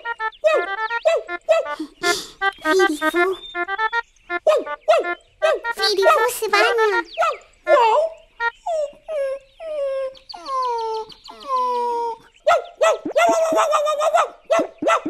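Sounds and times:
cartoon dog whimpering: 0.4s - 3.5s, 5.0s - 12.3s, 13.0s - 15.0s
high yapping barks: 0.4s - 3.6s, 4.3s - 8.2s, 12.4s - 15.0s.

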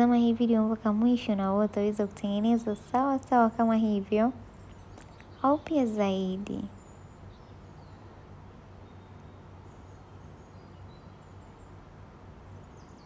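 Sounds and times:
faint bird chirps: 0.0s - 13.0s
low background hum: 0.0s - 13.0s.

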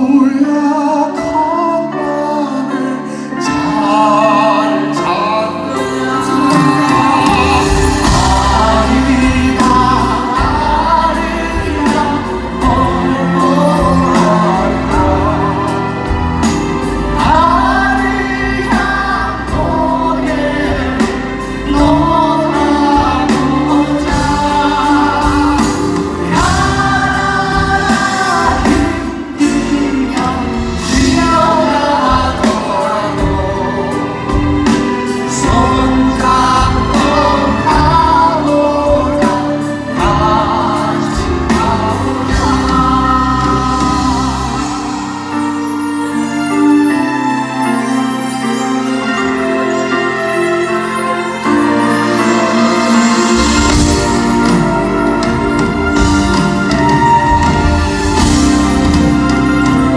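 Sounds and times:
live pop ballad through pa: 0.0s - 59.9s
voices singing together: 3.8s - 45.7s.

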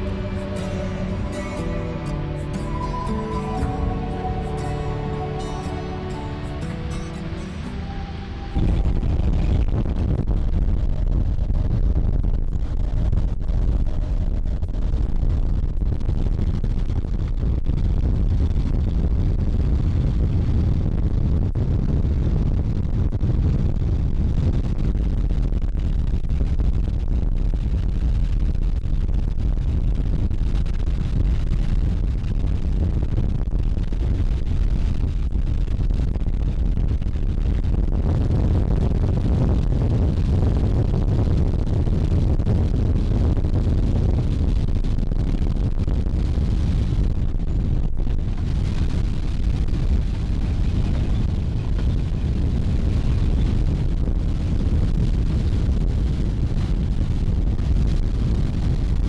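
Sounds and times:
boat engine low rumble: 0.0s - 11.8s, 46.1s - 58.9s
wind buffeting microphone: 7.3s - 59.0s.

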